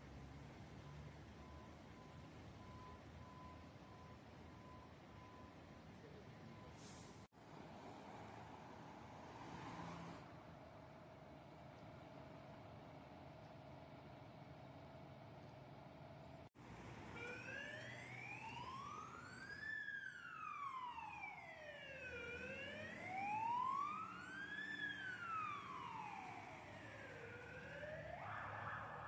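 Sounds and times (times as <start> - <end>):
fire engine siren wailing: 16.6 - 29.0.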